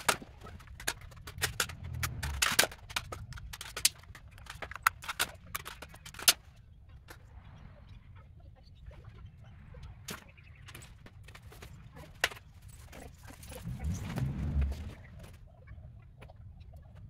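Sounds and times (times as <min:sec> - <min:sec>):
low rumble: 0:01.2 - 0:03.7, 0:13.2 - 0:15.9.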